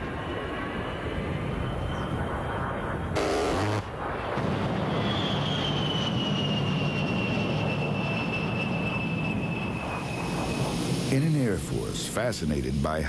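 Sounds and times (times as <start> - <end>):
high engine whine: 0.0 - 13.0
jet engines running: 0.0 - 13.0
loud rush of noise: 7.6 - 12.8.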